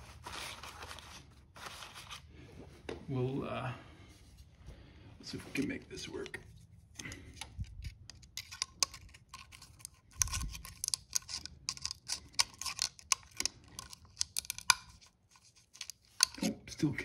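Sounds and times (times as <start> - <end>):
metallic tool clicks and scrapes: 7.4 - 16.6.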